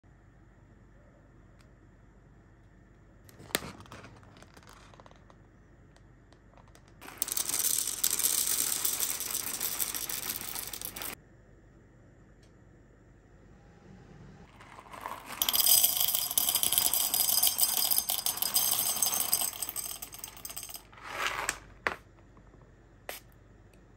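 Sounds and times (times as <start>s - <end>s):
coffee beans pouring into bowl: 7.0s - 11.2s, 14.5s - 21.6s.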